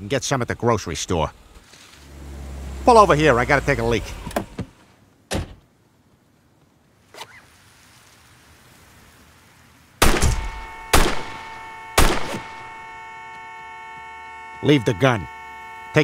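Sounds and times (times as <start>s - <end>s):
revolver shots: 10.0s - 12.7s
car horn sounding steadily: 10.4s - 16.0s.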